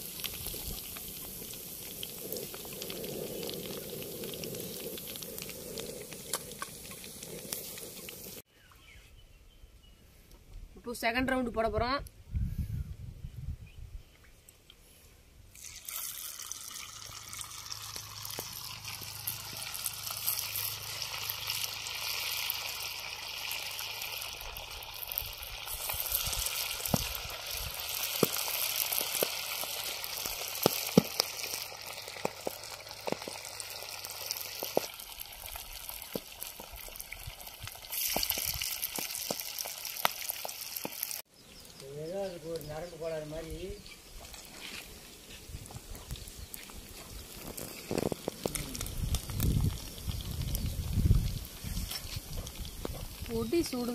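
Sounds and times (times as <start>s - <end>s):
fish deep-frying in hot oil: 0.0s - 8.5s, 15.5s - 41.3s, 42.6s - 44.6s, 45.2s - 53.9s
crackling pops of oil: 28.0s - 29.4s, 30.2s - 31.6s.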